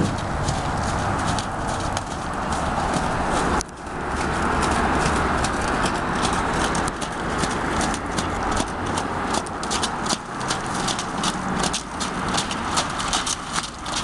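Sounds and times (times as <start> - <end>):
hooves squelching in mud: 0.0 - 14.0
steady rushing noise: 0.0 - 14.0.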